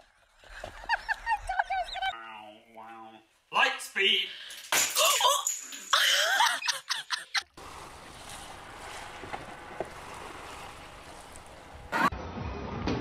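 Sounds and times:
hiss of wind and water: 7.6s - 12.0s.

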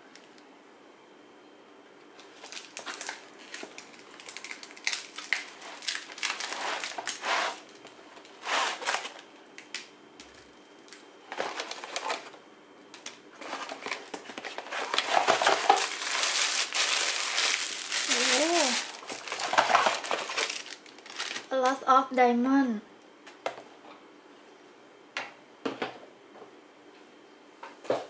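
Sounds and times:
plastic packaging crinkling: 2.2s - 12.4s, 13.0s - 21.8s
cardboard scraping: 6.2s - 7.6s, 8.4s - 9.2s, 13.4s - 17.0s.

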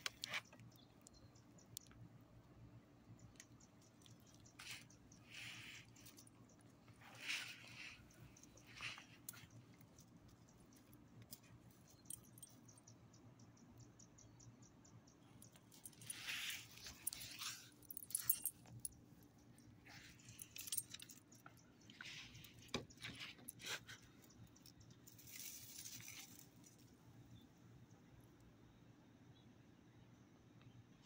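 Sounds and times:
dog collar tags jingling: 3.8s - 13.0s, 15.3s - 19.0s, 19.8s - 26.8s.

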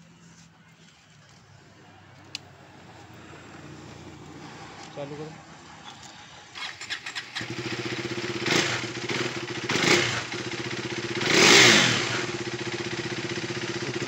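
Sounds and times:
motorcycle engine idling: 3.1s - 14.0s
electric starter cranking: 6.5s - 7.6s.

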